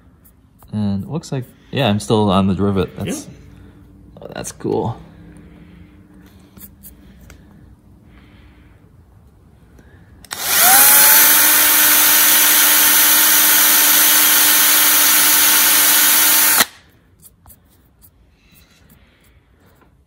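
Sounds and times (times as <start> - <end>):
electric drill drilling metal: 10.3 - 16.8.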